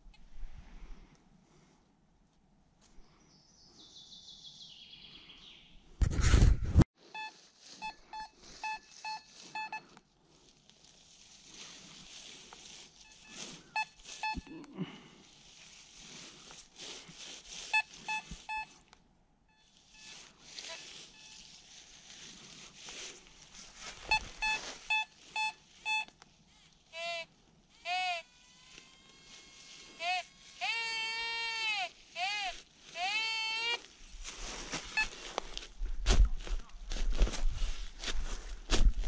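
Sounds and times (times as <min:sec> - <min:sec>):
metal detector short beeps: 0:07.1 - 0:09.9, 0:13.0 - 0:14.6, 0:17.7 - 0:18.8, 0:19.5 - 0:21.5, 0:24.0 - 0:26.2, 0:34.9 - 0:35.2.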